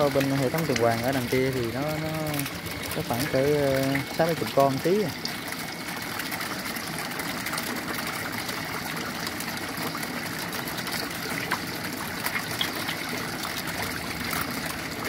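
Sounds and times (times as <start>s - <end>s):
water trickling and splashing: 0.0s - 15.0s.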